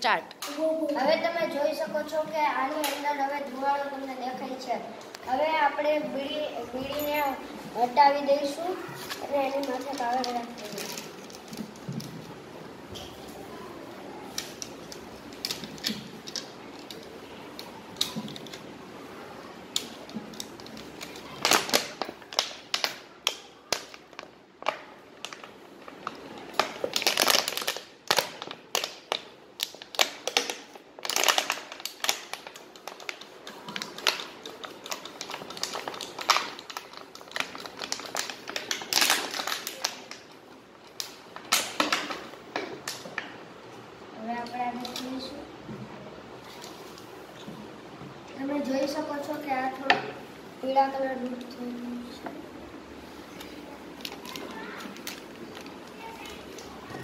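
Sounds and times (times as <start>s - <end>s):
plastic bottle crinkling: 9.0s - 12.5s, 19.7s - 43.1s, 53.2s - 57.0s
paper crinkling: 25.2s - 41.7s, 53.1s - 57.0s.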